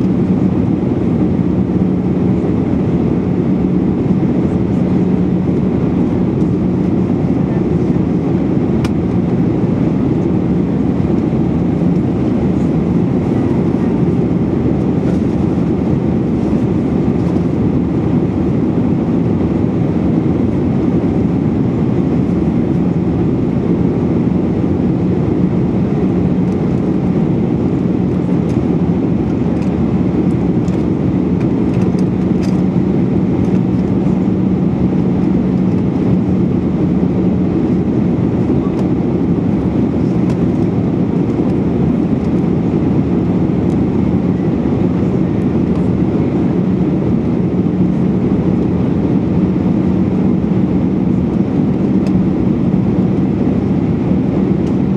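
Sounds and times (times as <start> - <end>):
jet engine low hum: 0.0 - 54.9.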